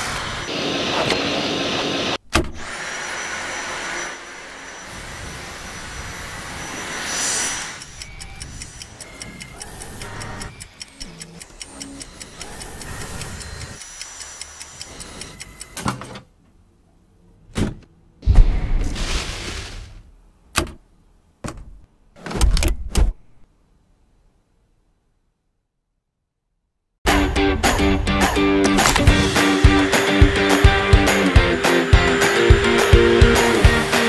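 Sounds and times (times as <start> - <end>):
light ticking: 7.8 - 15.8
stick vacuum running: 28.7 - 34.0.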